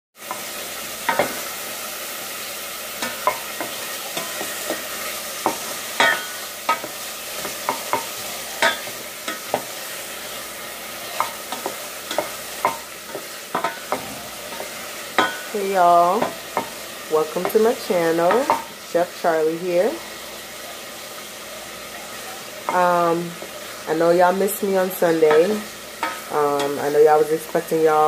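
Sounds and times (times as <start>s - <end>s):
food sizzling in a pot: 0.2s - 28.0s
wooden spoon knocking on pot: 16.2s - 16.8s.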